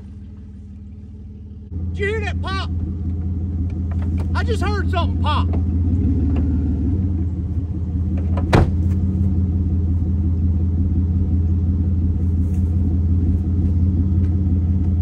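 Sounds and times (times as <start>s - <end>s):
pickup engine idling: 0.0s - 15.0s
truck door shutting: 3.8s - 4.4s, 8.1s - 9.2s.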